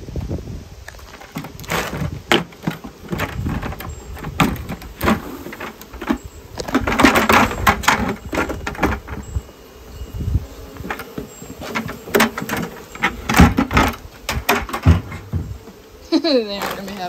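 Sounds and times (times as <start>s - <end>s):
bucket rattling: 0.9s - 9.4s, 10.7s - 17.0s
bucket knocking on wooden box: 1.1s - 9.3s, 10.8s - 15.8s.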